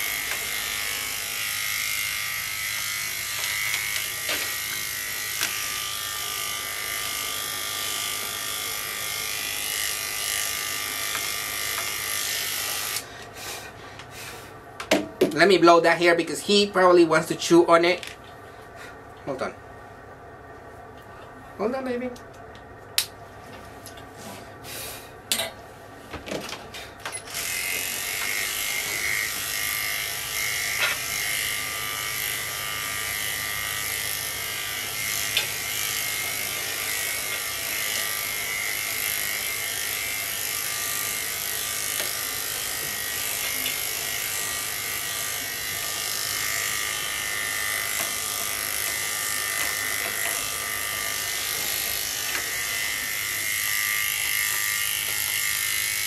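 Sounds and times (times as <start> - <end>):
electric clippers buzzing: 0.0 - 13.8, 15.3 - 18.2, 26.4 - 56.0.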